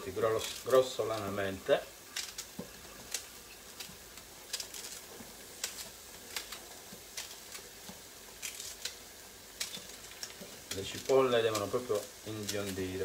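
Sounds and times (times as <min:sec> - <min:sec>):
onions sizzling in pan: 0:00.0 - 0:13.0.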